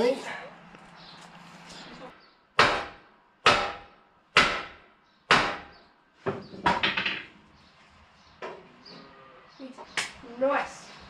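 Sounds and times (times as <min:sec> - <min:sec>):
hammer striking steel: 0:02.6 - 0:05.7.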